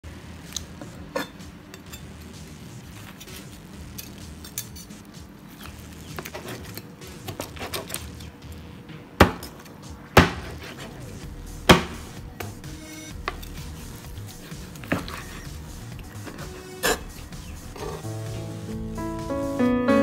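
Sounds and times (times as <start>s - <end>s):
cleaver scraping and knocking: 6.1s - 8.1s, 13.2s - 18.1s
cleaver chopping into board: 10.2s - 10.7s, 11.7s - 12.6s.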